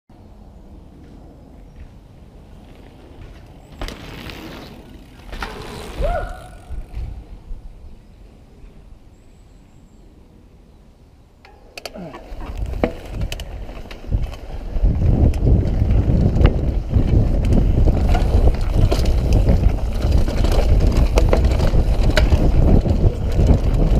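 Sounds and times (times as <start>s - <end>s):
mountain bike rolling rumble: 0.2s - 9.0s, 11.6s - 23.9s
bike tyres rushing on dirt: 0.6s - 8.2s, 12.0s - 23.9s
bike chain and frame rattling: 2.6s - 7.2s, 11.9s - 23.9s
wind on camera: 4.3s - 8.8s, 12.0s - 23.9s.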